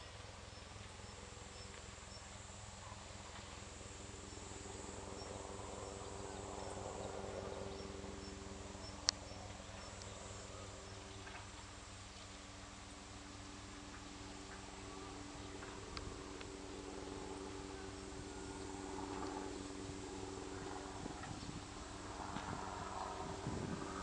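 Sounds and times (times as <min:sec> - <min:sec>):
reeds rustling in the wind: 0:09.2 - 0:24.0.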